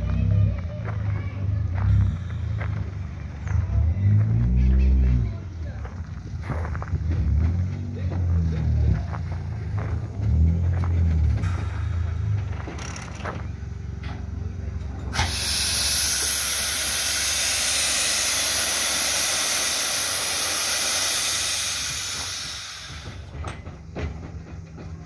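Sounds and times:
low rumble: 0.0 - 25.0
steam hissing: 15.1 - 23.4.

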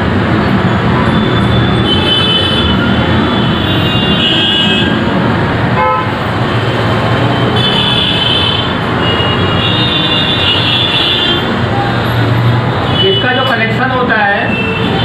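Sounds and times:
road traffic noise: 0.0 - 15.0
vehicle horn tooting: 5.8 - 6.2.

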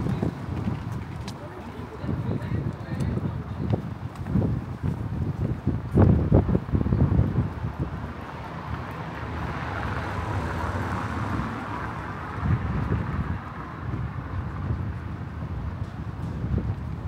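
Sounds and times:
wind buffeting microphone: 0.0 - 17.0
car passing: 7.7 - 14.8.

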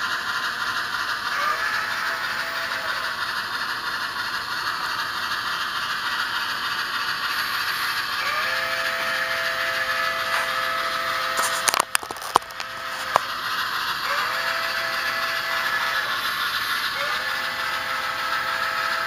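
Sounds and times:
model train hissing and rattling: 0.0 - 19.0
two-note steam whistle: 8.2 - 11.3.

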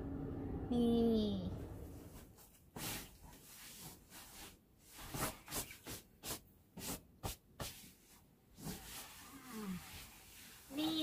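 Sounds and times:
comforter rustling: 1.9 - 11.0.

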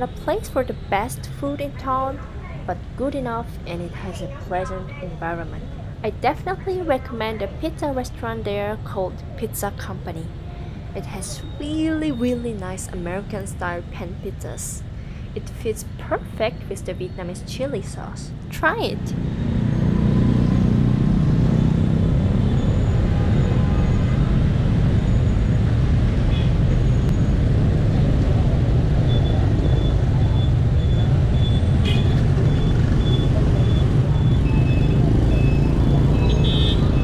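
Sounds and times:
scooter and car engines: 15.6 - 37.0.

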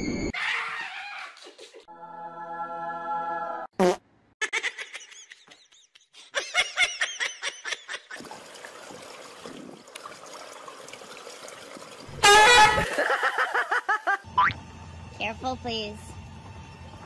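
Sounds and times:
person laughing: 4.4 - 8.2, 12.7 - 14.3
faint pool water sounds: 7.9 - 13.6.

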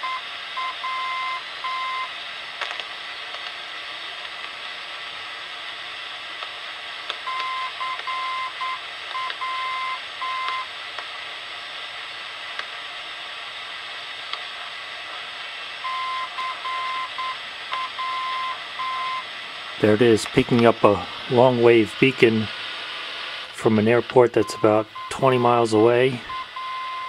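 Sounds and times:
morse code beeping tone: 0.0 - 2.1, 7.3 - 10.6, 15.8 - 19.2, 24.4 - 25.6, 26.3 - 27.0
radio static hiss: 0.0 - 27.0
static clicks: 2.6 - 3.6, 6.4 - 8.2, 9.0 - 9.5, 16.3 - 19.2, 19.9 - 27.0.

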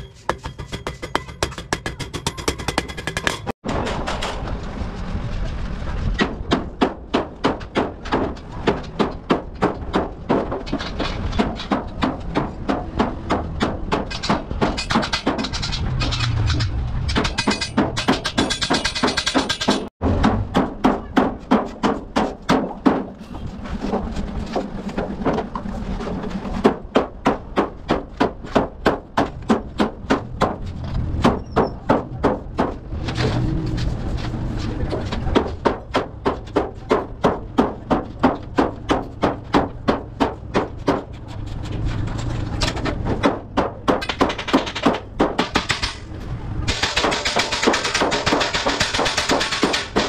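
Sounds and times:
hammer striking thin steel sheet: 0.0 - 4.0.

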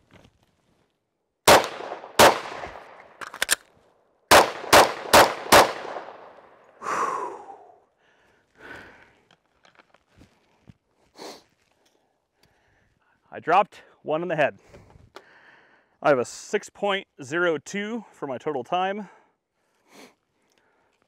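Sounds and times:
pistol shots with ringing echo: 1.5 - 3.2, 4.3 - 6.6
magazine reload clicks: 1.5 - 3.7.

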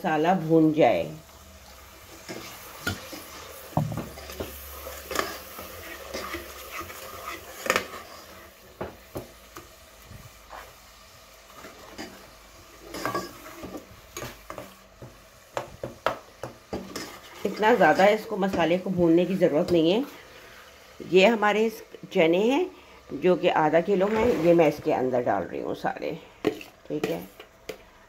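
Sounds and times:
faint sizzle of frying: 0.0 - 28.0
spatula scraping saucepan: 2.1 - 9.7, 11.5 - 15.6, 16.7 - 18.8, 23.8 - 25.1.

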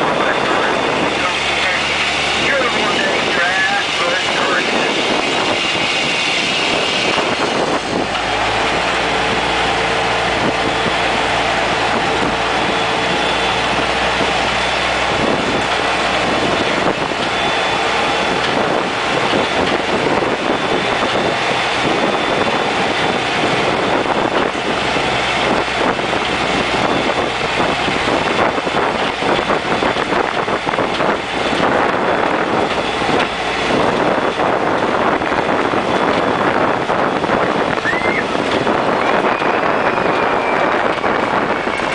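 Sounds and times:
engine hum: 0.0 - 41.9
rough rushing noise: 0.0 - 41.9
tram running noise: 0.0 - 41.9.

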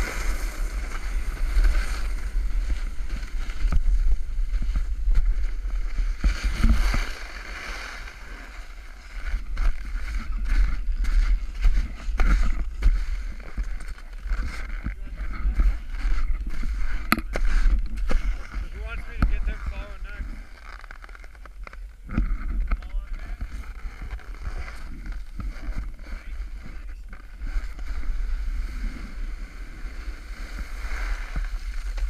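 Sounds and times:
skis sliding on packed snow: 0.0 - 32.0.

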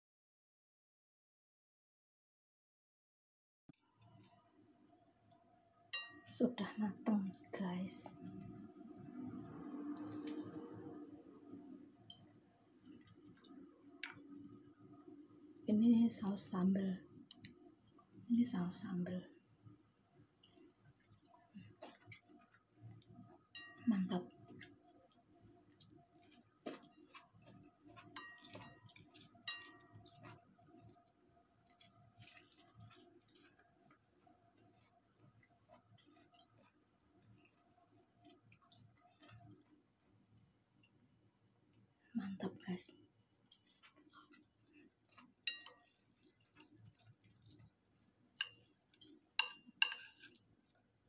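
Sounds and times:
chopsticks clicking on ceramic plate: 45.5 - 46.3, 48.4 - 50.4.

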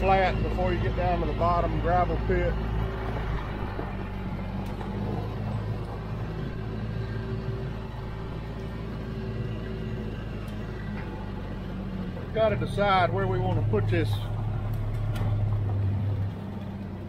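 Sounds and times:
utility vehicle engine humming: 0.0 - 17.0.

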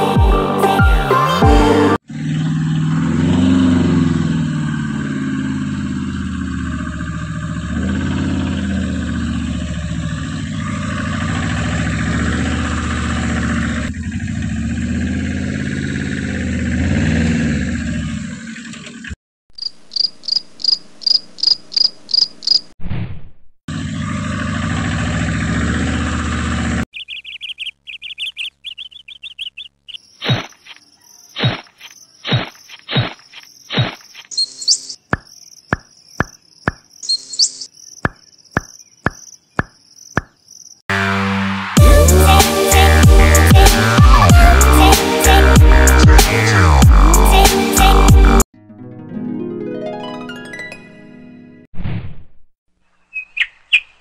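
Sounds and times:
vehicle engine rumbling: 2.0 - 19.2, 23.7 - 29.9
high chirps: 26.9 - 40.8
high warbling chirps: 26.9 - 40.8.

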